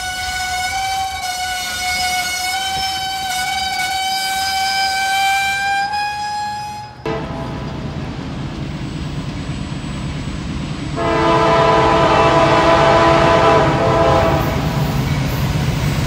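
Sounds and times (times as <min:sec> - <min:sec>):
train wheels squealing on rail: 0:00.0 - 0:11.0, 0:14.3 - 0:16.0.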